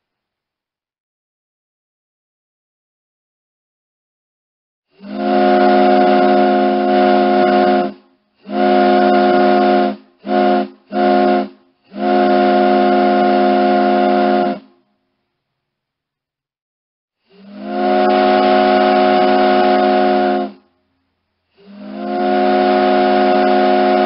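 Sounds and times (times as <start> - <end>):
ship's horn blasts: 4.9 - 14.8, 17.3 - 20.7, 21.6 - 24.0.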